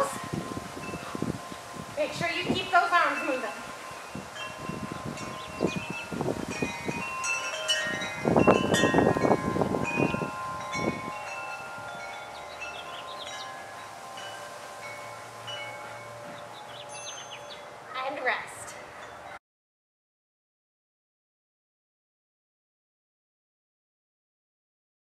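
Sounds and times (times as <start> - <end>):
wind buffeting microphone: 0.0 - 17.8
wind chimes ringing: 0.0 - 19.4.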